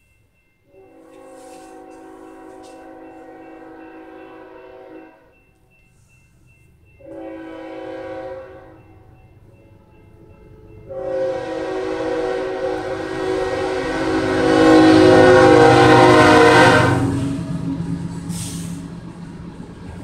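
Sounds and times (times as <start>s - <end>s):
train rumbling: 0.0s - 20.0s
locomotive air horn blasts: 0.7s - 5.3s, 7.0s - 8.8s, 10.9s - 17.4s.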